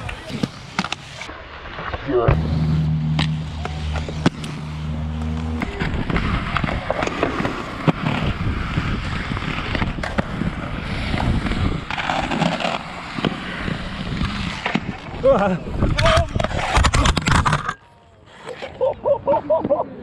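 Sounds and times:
skate clicks and knocks: 0.0 - 2.0, 3.2 - 4.7, 5.3 - 15.2, 15.8 - 17.9
skate wheels rolling on concrete: 0.0 - 18.5
low steady hum: 2.2 - 7.5.

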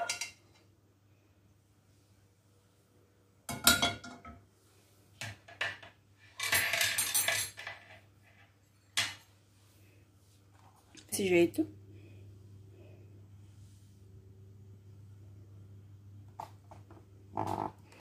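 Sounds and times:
utensils knocking and rattling: 5.2 - 8.1.

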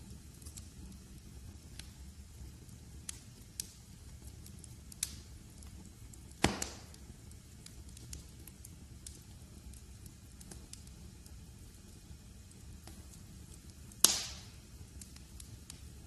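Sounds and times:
wood fire crackling: 0.0 - 16.0
loud pop from fire: 6.3 - 7.1, 14.0 - 14.6.

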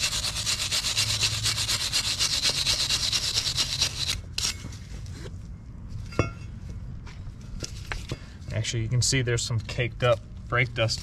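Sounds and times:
wire brush scrubbing metal: 0.0 - 4.6.

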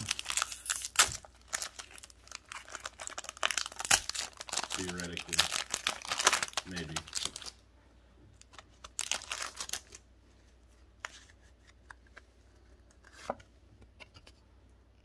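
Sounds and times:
foil wrapper crinkling: 0.0 - 7.6, 8.4 - 10.0.

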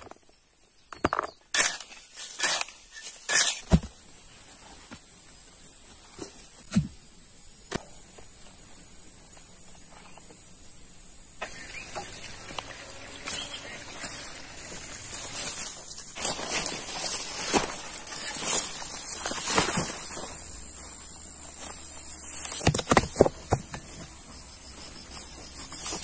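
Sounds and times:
spade striking stony soil: 1.0 - 4.0
high-pitched insect drone: 9.7 - 22.6.

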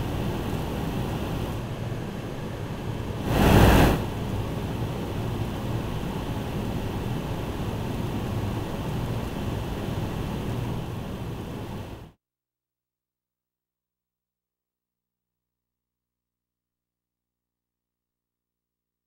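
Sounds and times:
low outdoor rumble and hum: 0.0 - 12.1
loud rush of noise: 2.9 - 5.3.

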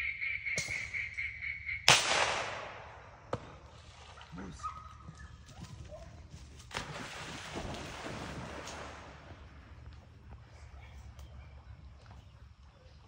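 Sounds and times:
dog splashing into water: 6.7 - 9.4
dog swimming churning water: 6.7 - 9.7.

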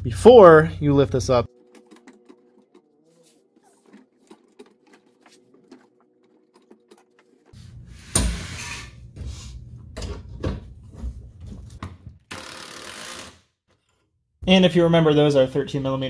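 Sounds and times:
knocks and rattles: 1.5 - 7.6
tools clicking and tapping: 1.5 - 7.6.

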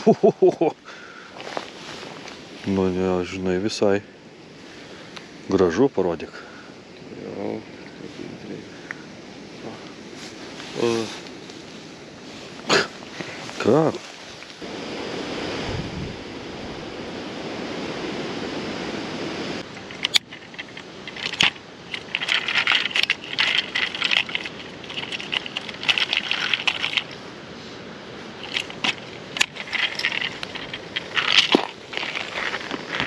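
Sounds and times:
rustling in dry leaves: 0.2 - 3.2, 10.0 - 16.4, 19.6 - 33.0
steady rushing noise: 7.4 - 33.0.

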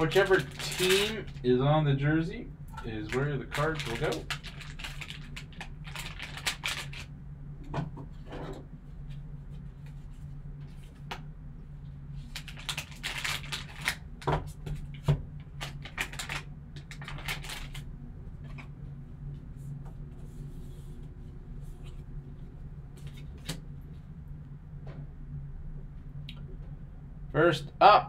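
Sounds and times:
foil wrapper crinkling and tearing: 0.0 - 1.5, 2.9 - 7.1, 12.3 - 14.1, 15.5 - 17.9
steady low hum: 0.0 - 28.0.

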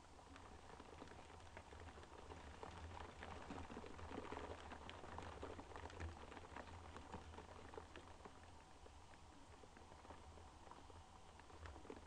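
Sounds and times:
rain tapping on a window: 0.0 - 12.0.

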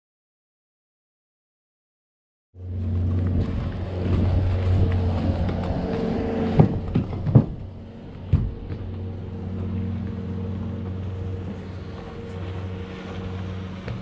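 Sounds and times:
vehicle engine idling: 2.6 - 14.0
knocks inside horse trailer: 6.5 - 8.8.

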